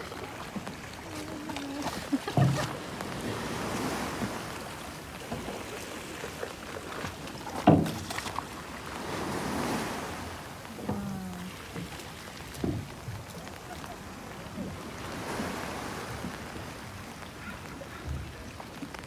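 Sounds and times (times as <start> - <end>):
waves washing in: 0.0 - 19.0.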